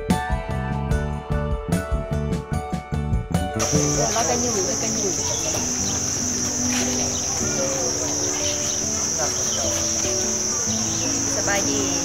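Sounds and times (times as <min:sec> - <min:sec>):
faint voices: 0:03.6 - 0:12.0
high-pitched insect chorus: 0:03.6 - 0:12.0.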